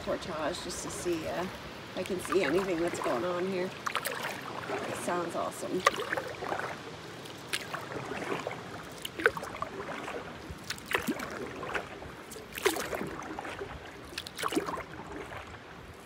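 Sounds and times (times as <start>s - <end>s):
paddle splashing in water: 0.0s - 16.0s
water dripping and trickling: 0.0s - 16.0s.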